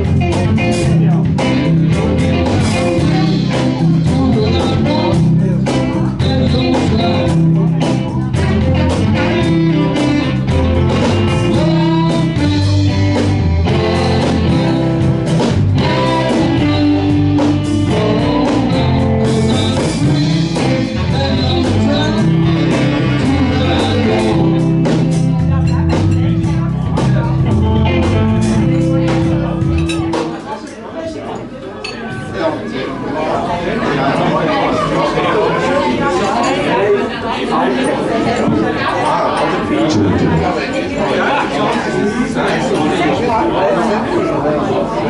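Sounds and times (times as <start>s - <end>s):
bass line: 0.0s - 30.5s, 39.7s - 41.0s
drum kit beat: 0.0s - 30.6s
electric guitars: 0.0s - 30.6s
live blues band playing: 0.0s - 30.6s, 38.2s - 42.6s.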